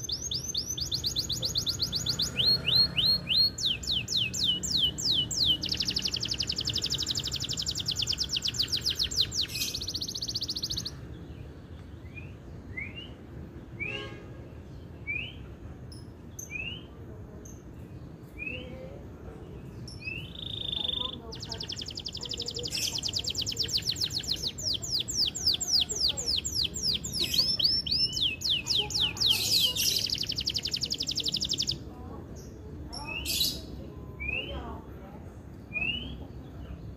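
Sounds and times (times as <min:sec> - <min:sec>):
canary trilling: 0:00.0 - 0:11.1, 0:19.9 - 0:34.5
canary chirps: 0:00.0 - 0:34.9, 0:35.5 - 0:36.9.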